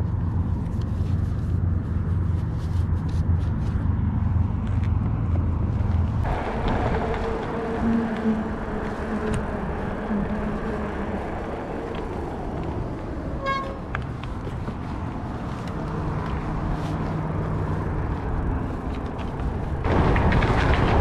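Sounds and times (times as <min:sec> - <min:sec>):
road traffic passing: 0:00.0 - 0:21.0
wind rush on microphone: 0:00.0 - 0:21.0
car horn toot: 0:13.4 - 0:13.9.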